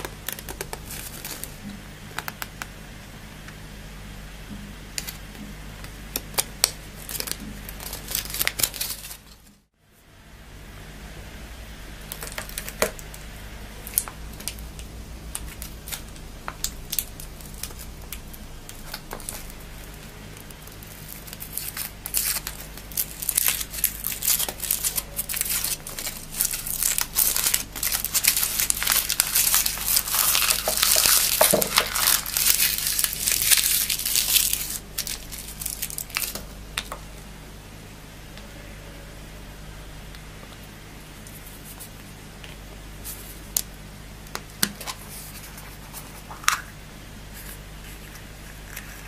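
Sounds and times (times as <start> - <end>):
foil wrapper crinkling and tearing: 0.0 - 1.6, 6.2 - 9.5, 15.4 - 36.5.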